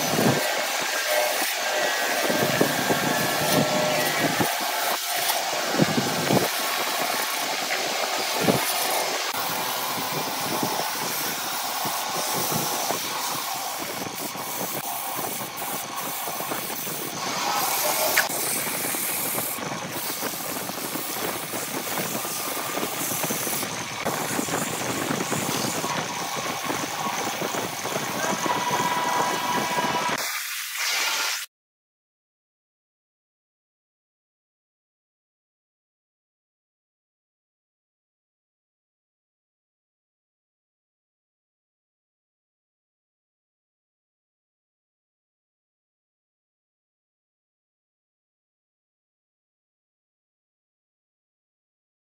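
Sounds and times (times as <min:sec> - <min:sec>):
lathe humming: 0:00.0 - 0:30.2
sandpaper hissing on spinning wood: 0:00.0 - 0:31.5.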